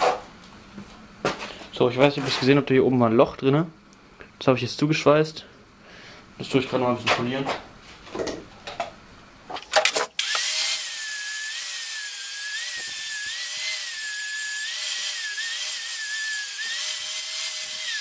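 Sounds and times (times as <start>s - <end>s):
angle grinder grinding steel: 10.2s - 18.0s.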